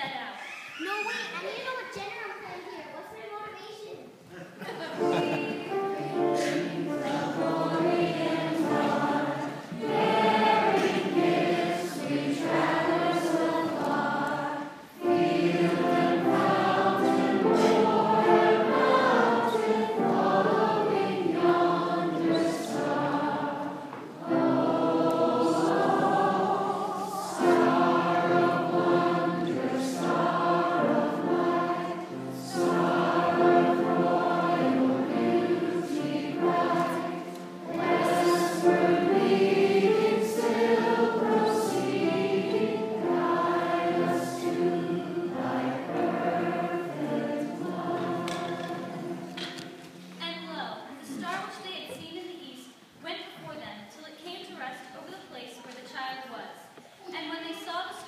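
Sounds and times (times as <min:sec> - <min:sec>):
choir singing: 0:04.9 - 0:50.2.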